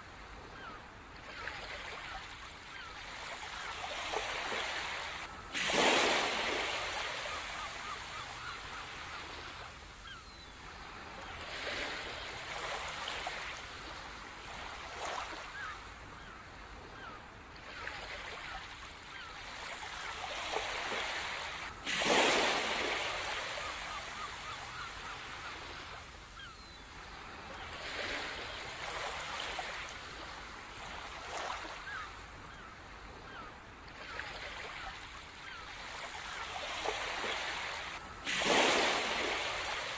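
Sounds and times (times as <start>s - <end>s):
waves breaking on shore: 0.0s - 39.9s.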